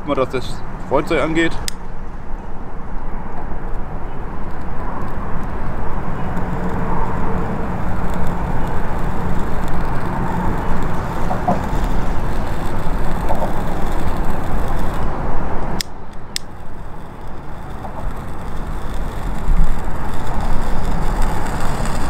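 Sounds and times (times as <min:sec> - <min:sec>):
low outdoor rumble: 0:00.0 - 0:22.0
lighter clicking: 0:15.7 - 0:22.0.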